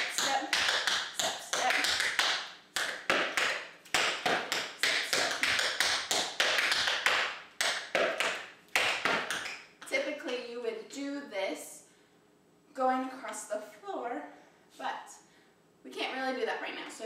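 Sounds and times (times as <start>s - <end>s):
tap shoes on tap board: 0.0s - 9.6s.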